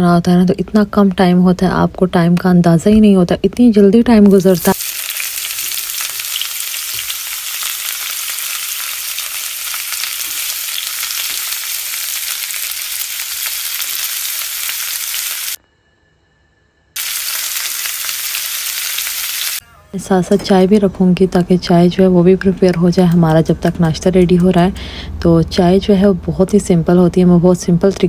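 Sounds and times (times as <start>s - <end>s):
food sizzling in hot oil: 4.3s - 15.6s, 17.0s - 19.6s.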